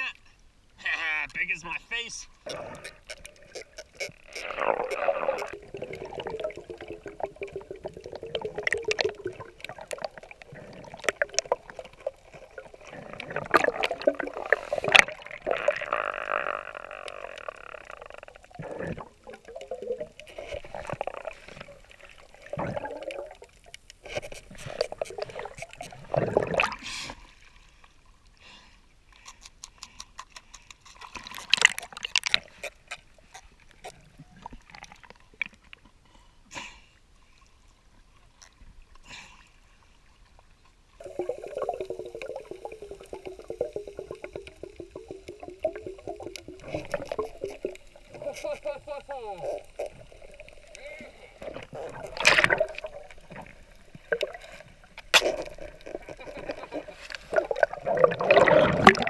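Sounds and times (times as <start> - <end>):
underwater gurgling and sloshing: 0.3 - 59.0
sharp underwater clicks: 2.4 - 26.8, 29.1 - 35.8, 51.4 - 59.0.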